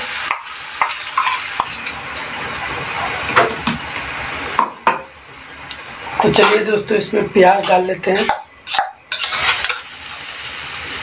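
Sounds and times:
paste sizzling in hot oil: 0.0s - 4.6s, 5.8s - 11.0s
spoon clinking and scraping pan: 0.3s - 2.0s, 6.2s - 6.8s, 7.4s - 10.0s.

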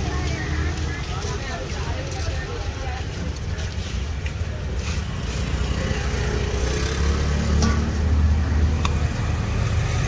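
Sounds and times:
motor vehicle passing: 4.9s - 10.0s.

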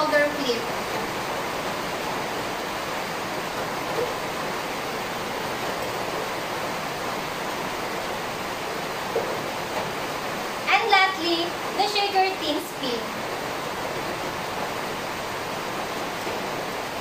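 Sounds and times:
steady background hiss: 0.0s - 17.0s.

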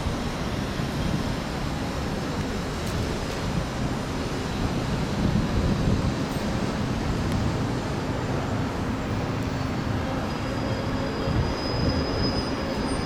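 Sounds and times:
electric train rumbling: 0.0s - 13.0s
thin high brake squeal: 9.5s - 13.0s.

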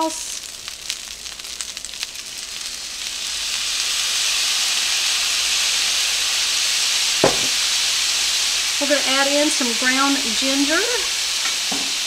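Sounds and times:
sauce sizzling in hot skillet: 0.0s - 12.0s
brief knock: 7.2s - 7.6s.

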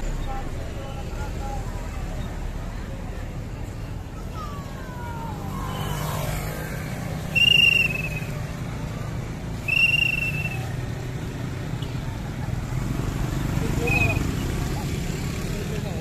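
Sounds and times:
high whistle blasts: 7.3s - 8.4s, 9.6s - 10.8s.

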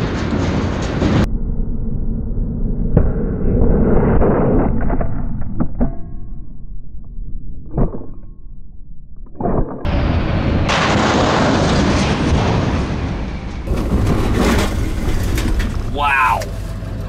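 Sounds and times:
truck crashing into metal cabinet: 13.7s - 16.0s.

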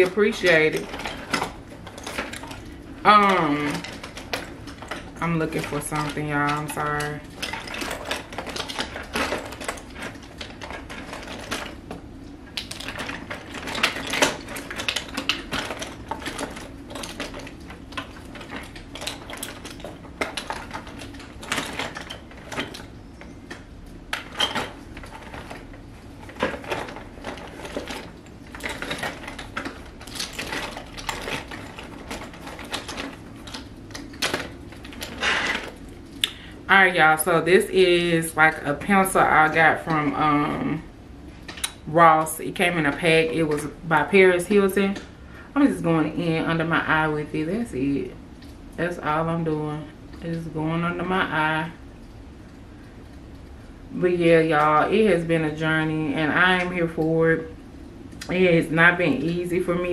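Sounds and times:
small objects clicking and clattering: 0.0s - 36.5s.

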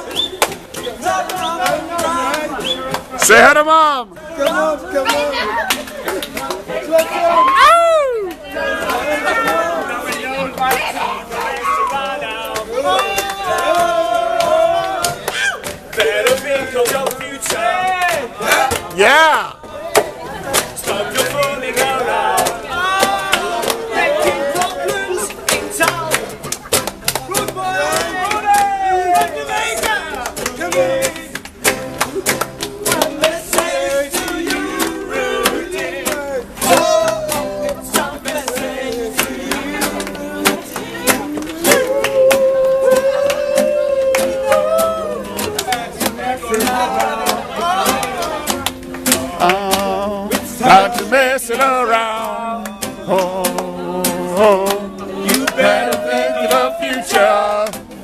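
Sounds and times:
group of people singing: 0.0s - 3.2s, 4.2s - 19.1s, 20.4s - 26.5s, 27.1s - 58.0s
acoustic guitar strumming: 19.9s - 58.0s
man singing loudly: 49.3s - 57.7s.

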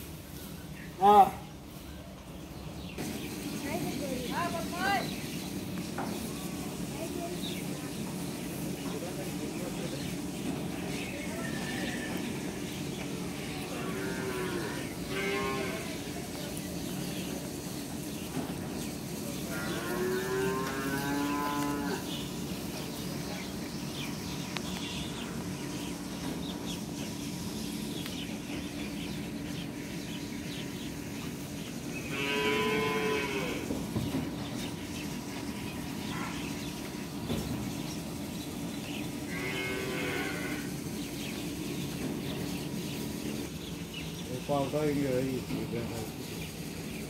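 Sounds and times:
cattle mooing: 13.5s - 16.0s, 19.5s - 22.1s, 32.1s - 33.7s, 39.3s - 40.7s.

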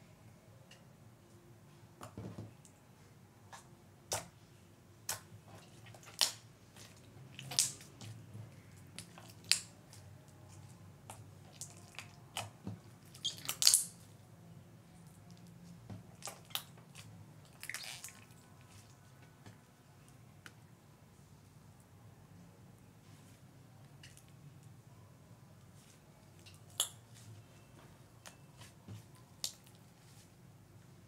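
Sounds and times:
slime squeezed by hand: 13.1s - 14.0s.

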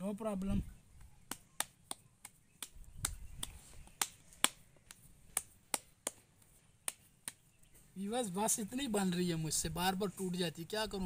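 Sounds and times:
palms slapping dough: 0.9s - 7.7s.

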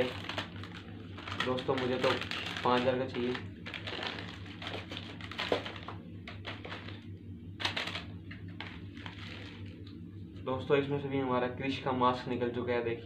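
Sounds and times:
snack packet crinkling: 0.0s - 7.0s, 7.6s - 9.7s.

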